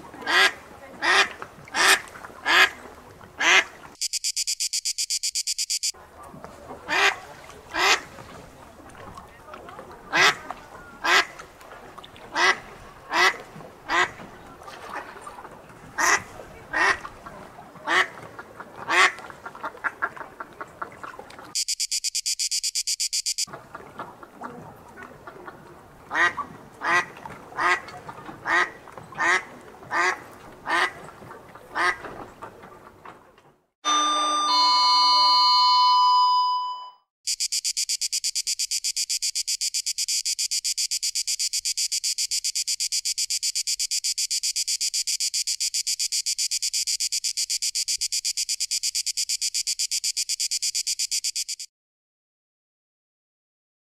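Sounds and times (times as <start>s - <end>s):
duck quacking: 0.2s - 2.8s, 3.4s - 3.8s, 6.9s - 8.1s, 10.1s - 11.4s, 12.3s - 14.2s, 16.0s - 20.9s, 26.1s - 31.0s, 31.7s - 32.0s
fast high-pitched pulsing: 4.0s - 5.9s.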